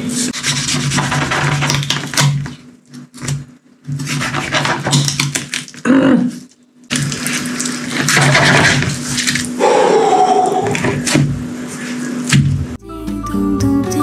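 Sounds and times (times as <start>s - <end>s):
background music with clicking beat: 12.8s - 14.0s.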